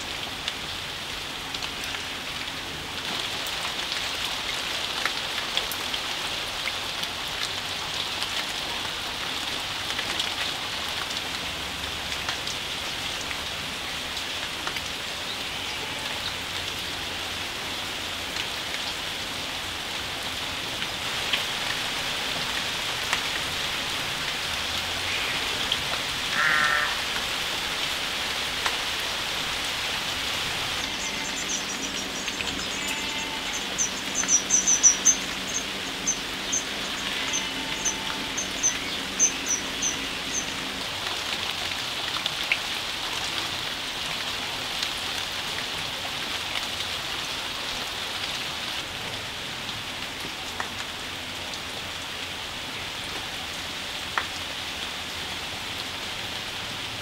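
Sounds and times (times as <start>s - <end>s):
rain falling on leaves: 0.0s - 57.0s
wavering bird call: 26.3s - 27.1s.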